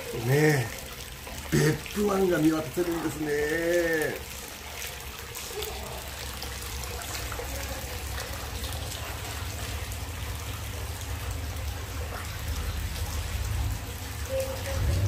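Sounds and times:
water trickling and splashing: 0:00.0 - 0:15.0.

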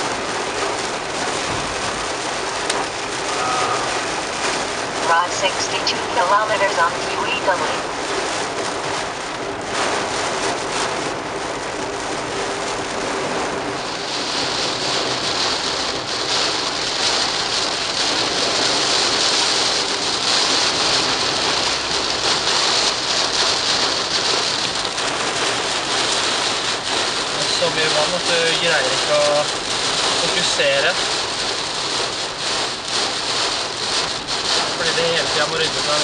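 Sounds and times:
heavy rain on car windshield: 0:00.0 - 0:36.0
wet road spray hiss: 0:13.4 - 0:36.0.

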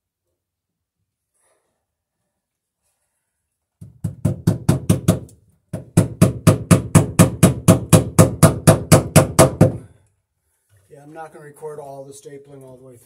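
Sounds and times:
hammer striking staples into wood: 0:03.8 - 0:09.9.

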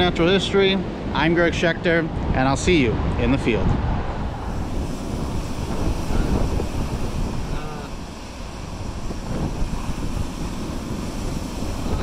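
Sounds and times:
surf washing on beach: 0:00.0 - 0:12.0
wind buffeting microphone: 0:00.0 - 0:12.0
faint call: 0:07.4 - 0:08.1.

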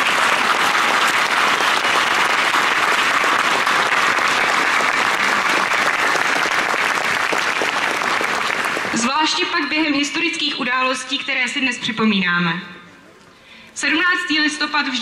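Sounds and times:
large crowd applauding: 0:00.0 - 0:09.1.

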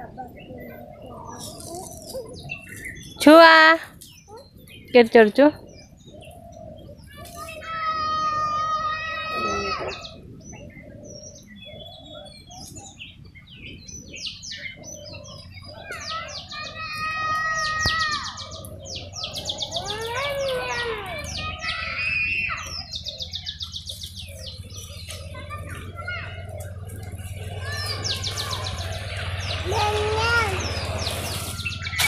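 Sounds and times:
birds chirping: 0:00.0 - 0:32.0
bird trills: 0:09.2 - 0:32.0.

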